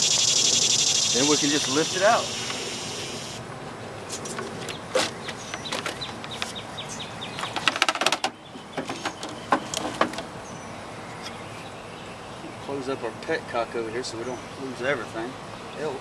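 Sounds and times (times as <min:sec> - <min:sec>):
radiator knocking and scraping: 0:07.4 - 0:10.3.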